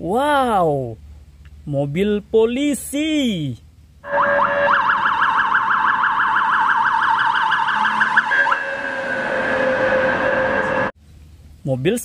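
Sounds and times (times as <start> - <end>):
electronic police siren: 4.0 - 10.9.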